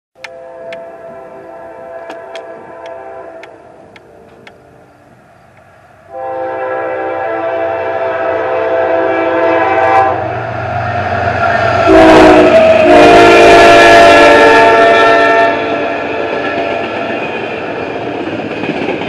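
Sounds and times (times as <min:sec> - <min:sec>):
train air horn blast: 0:00.2 - 0:04.5, 0:06.1 - 0:10.7, 0:11.4 - 0:16.8
rush of passing train wheels: 0:00.3 - 0:19.0.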